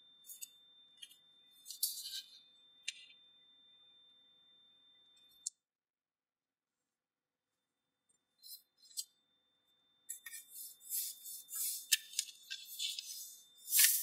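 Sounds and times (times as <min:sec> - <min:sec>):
paper rustling and creasing: 0:10.2 - 0:14.0.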